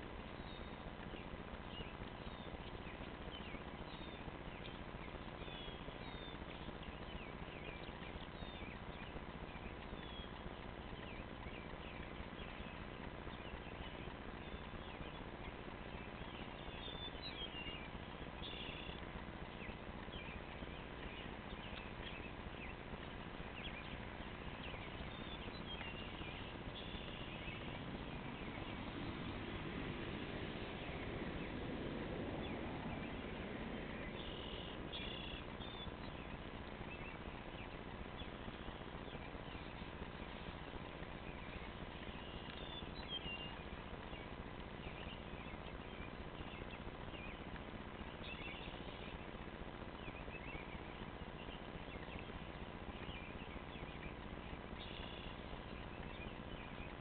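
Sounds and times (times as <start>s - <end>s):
small birds chirping: 0.0s - 57.0s
steady background hiss: 0.0s - 57.0s.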